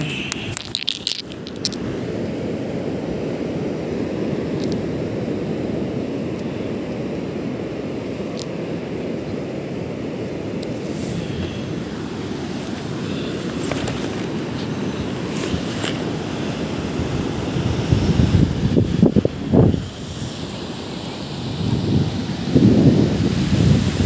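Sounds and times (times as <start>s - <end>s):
wind buffeting microphone: 10.8s - 20.8s, 21.4s - 24.0s.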